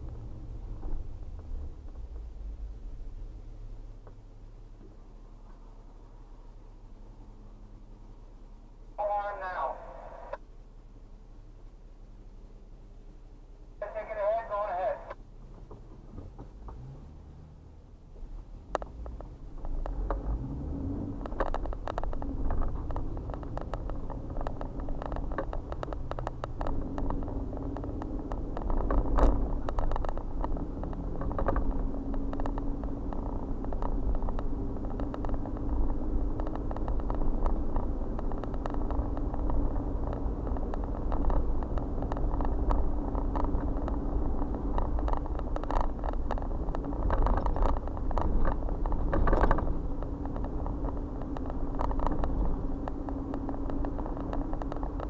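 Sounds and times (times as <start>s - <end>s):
car engine and tyre rumble: 0.0s - 55.0s
small clicks and knocks: 18.2s - 55.0s.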